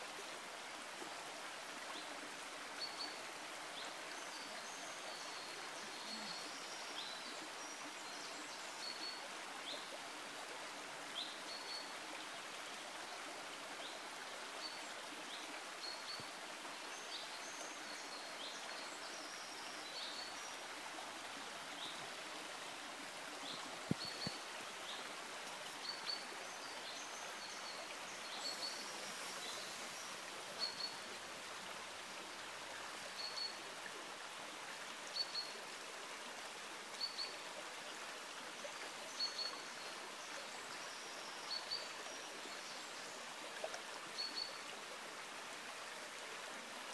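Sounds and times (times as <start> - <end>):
rocky stream running: 0.0 - 46.9.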